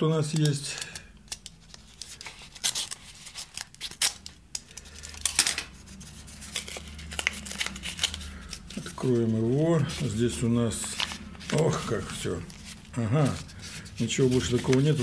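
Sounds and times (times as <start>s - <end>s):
paper crackling and tearing: 0.2s - 15.0s
utility knife slitting paper: 9.8s - 15.0s.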